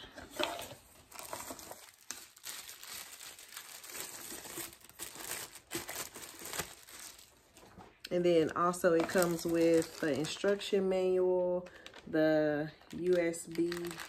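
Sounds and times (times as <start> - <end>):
plastic bag crinkling: 0.1 - 14.0.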